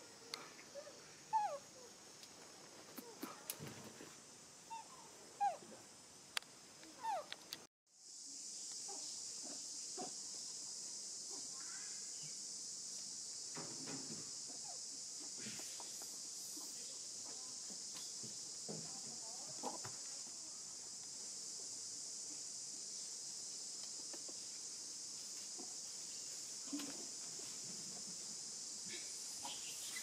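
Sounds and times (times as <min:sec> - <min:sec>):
high-pitched hiss: 0:00.0 - 0:30.0
baby monkey squeaking: 0:01.3 - 0:01.6.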